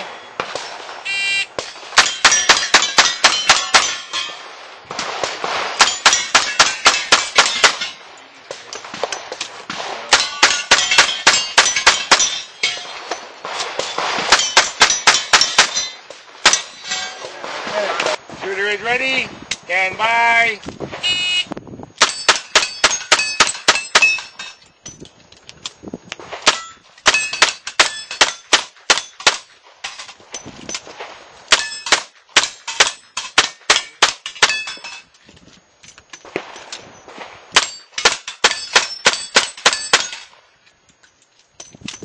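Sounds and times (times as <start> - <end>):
bullet ringing on steel plate: 2.0 - 4.4, 22.0 - 25.0, 31.6 - 35.0, 37.6 - 40.3.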